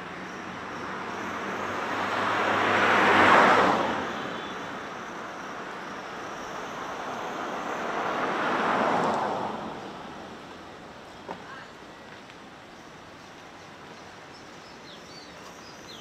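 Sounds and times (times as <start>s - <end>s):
cars passing by: 0.0s - 16.0s.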